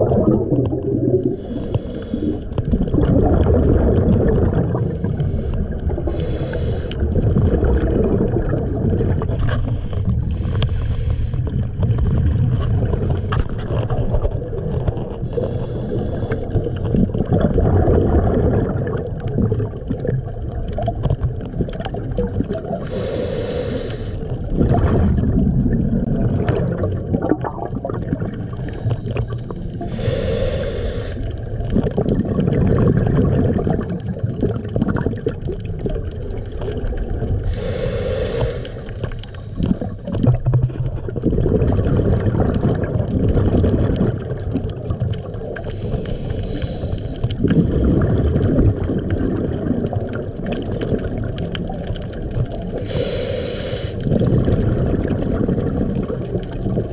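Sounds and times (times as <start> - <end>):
exhaled bubbles rumbling: 0.0 - 56.9
regulator hissing inhale: 1.3 - 2.6, 4.8 - 7.0, 9.7 - 11.7, 15.2 - 16.6, 22.8 - 24.3, 28.7 - 31.4, 37.4 - 39.9, 45.6 - 47.3, 52.8 - 54.1.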